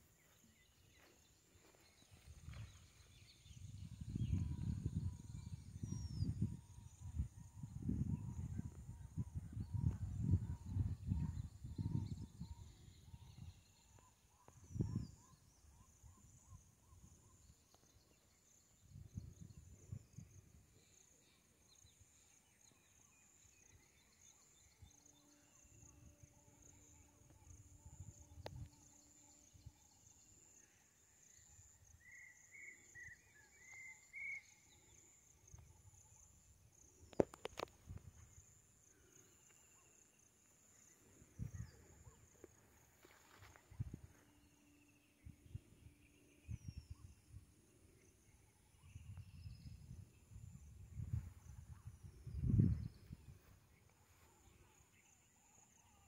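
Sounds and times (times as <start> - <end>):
insect chirring: 22.9 - 56.0
bird chirps: 31.3 - 36.2.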